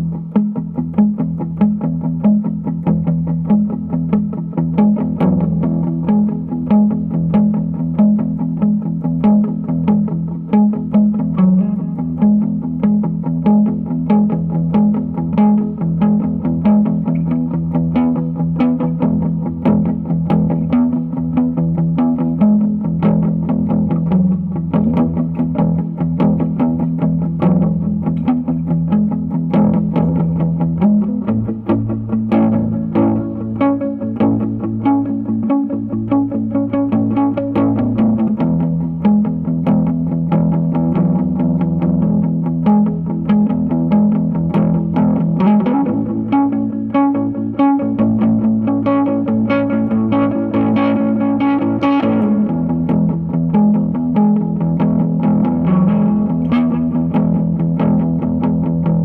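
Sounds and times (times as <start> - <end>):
electric guitar chords: 0.0 - 59.0.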